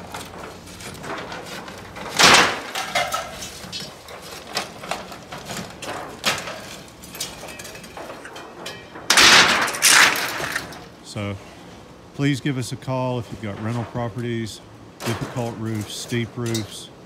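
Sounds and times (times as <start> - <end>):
metal roofing sheet crashing: 0.0 - 10.9
metallic clanks and knocks: 0.0 - 10.9.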